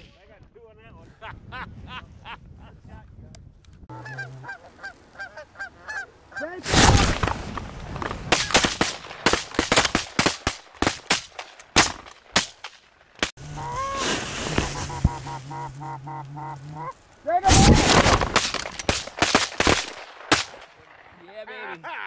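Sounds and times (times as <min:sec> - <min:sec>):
geese honking: 0:03.9 - 0:06.6, 0:13.4 - 0:17.1
shotgun fire: 0:08.3 - 0:12.8, 0:17.5 - 0:20.7.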